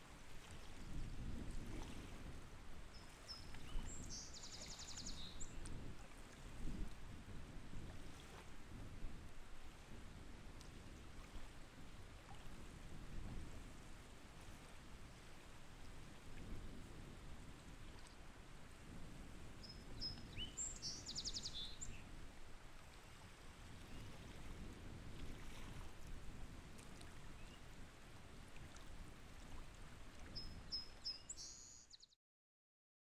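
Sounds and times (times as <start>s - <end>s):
songbird singing: 2.9s - 5.6s, 19.6s - 22.0s, 30.3s - 32.2s.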